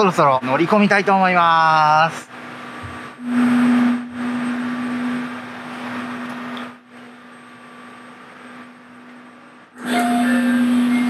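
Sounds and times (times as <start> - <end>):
diesel railcar engine idling: 3.8 - 11.0.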